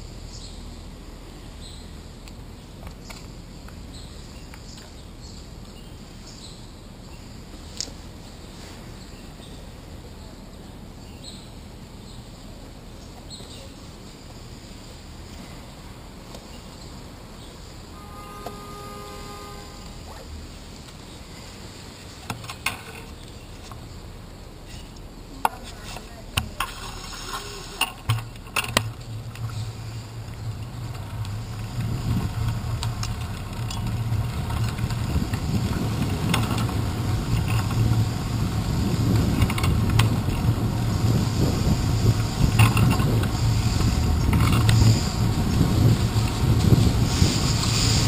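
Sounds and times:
road and wind rumble: 0:00.0 - 0:48.0
bike rattles and knocks: 0:22.1 - 0:23.8, 0:24.7 - 0:48.0.

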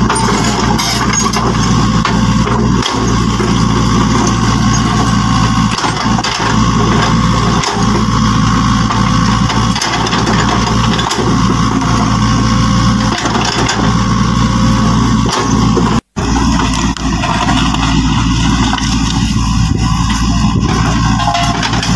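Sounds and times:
heavy engine idling: 0:00.0 - 0:21.9.

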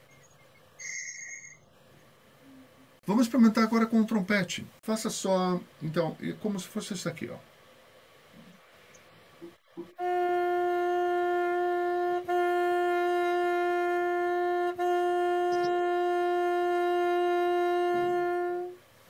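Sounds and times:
trumpet playing steady notes: 0:09.8 - 0:18.9.

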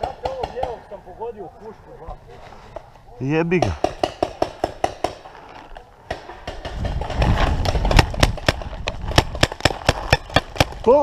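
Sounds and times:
paintball markers firing: 0:06.1 - 0:11.0.

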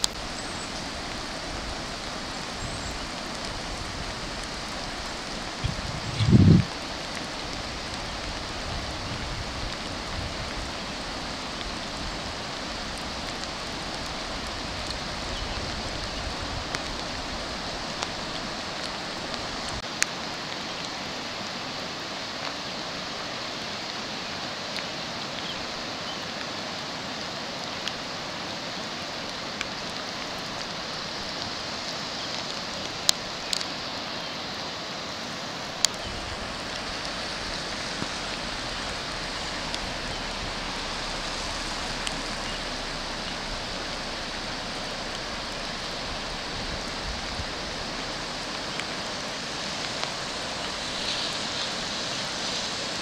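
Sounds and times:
water hissing: 0:00.0 - 0:19.8, 0:35.6 - 0:53.0.

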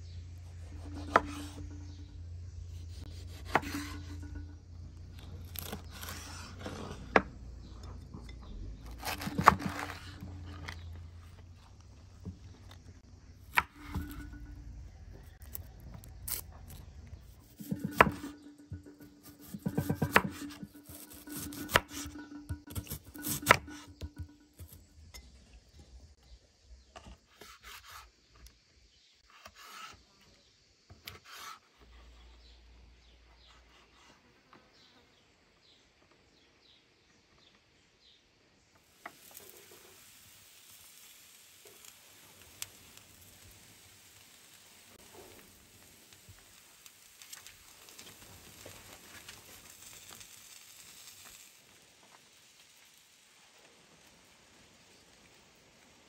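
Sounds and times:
knife chopping on wooden board: 0:00.8 - 0:01.6, 0:03.1 - 0:04.2, 0:08.9 - 0:10.8, 0:17.4 - 0:24.8.

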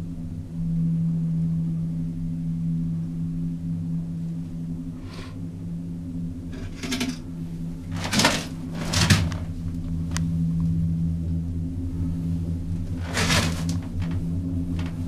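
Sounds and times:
cable car cabin humming: 0:00.0 - 0:15.0
short rattles: 0:06.6 - 0:07.2, 0:07.9 - 0:09.6, 0:12.9 - 0:15.0.

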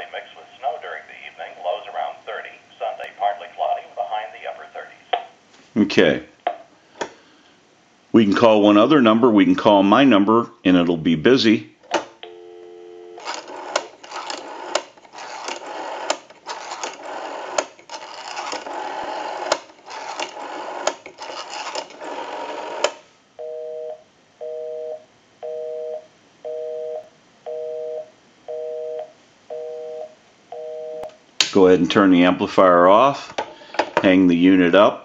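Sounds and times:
busy signal beeping: 0:12.3 - 0:13.2, 0:23.4 - 0:31.1
crackling phone line noise: 0:12.3 - 0:23.0.

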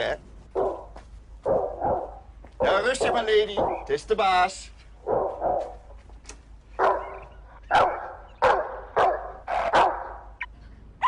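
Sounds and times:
dog barking through horn: 0:01.5 - 0:03.9, 0:06.8 - 0:10.2.

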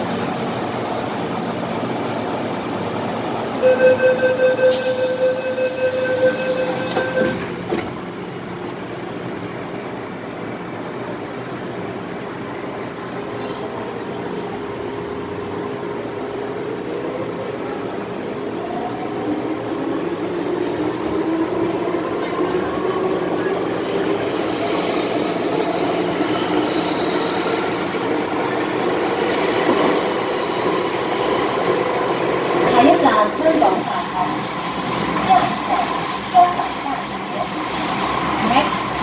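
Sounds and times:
train door chime beeping: 0:03.6 - 0:07.6.

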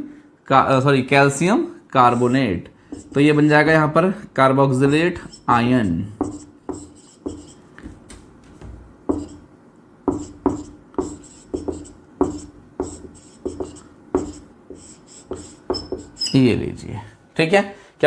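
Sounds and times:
marker pen on whiteboard: 0:02.0 - 0:03.8, 0:04.8 - 0:16.5.

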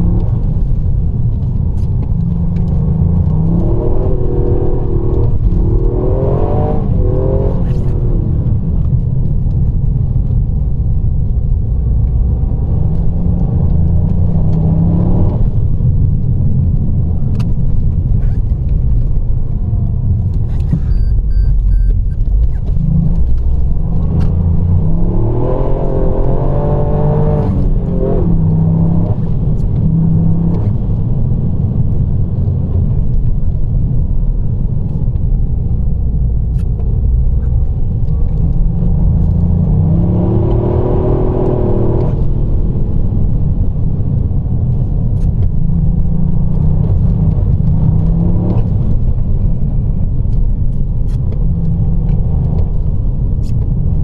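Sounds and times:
car engine: 0:00.0 - 0:54.0.

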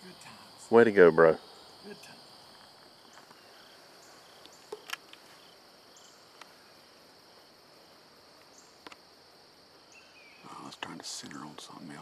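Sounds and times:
crickets droning: 0:00.0 - 0:12.0.

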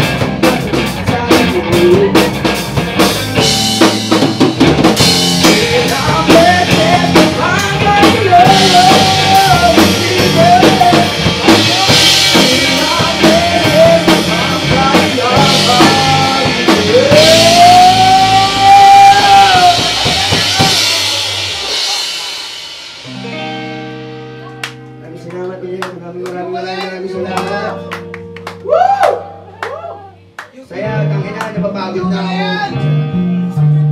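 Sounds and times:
bass guitar: 0:00.0 - 0:33.9
drum kit: 0:00.0 - 0:33.9
electric guitars: 0:00.0 - 0:33.9
man singing into a microphone: 0:00.4 - 0:02.5, 0:05.3 - 0:20.9, 0:25.1 - 0:27.9.

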